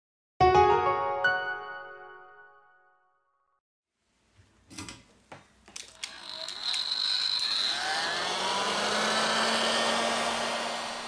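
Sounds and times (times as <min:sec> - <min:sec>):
fan whine: 0:05.8 - 0:11.0
heat gun blowing: 0:05.9 - 0:11.0.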